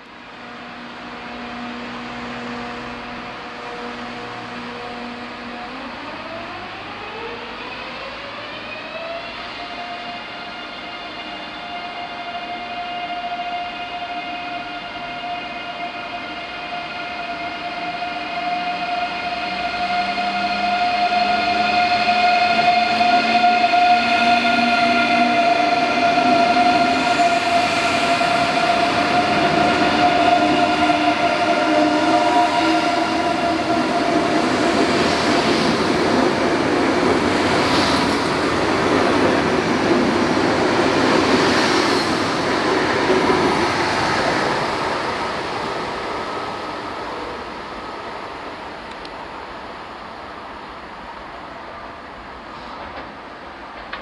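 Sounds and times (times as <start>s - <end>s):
electric train whine: 0.0s - 54.0s
train wheels rolling and clicking: 52.5s - 54.0s.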